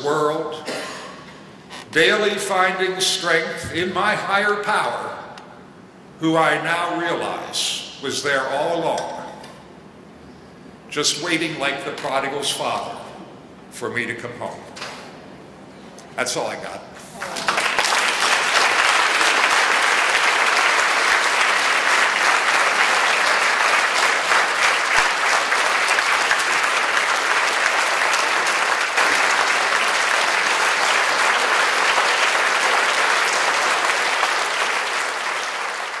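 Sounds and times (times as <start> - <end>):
audience applauding: 17.2 - 36.0.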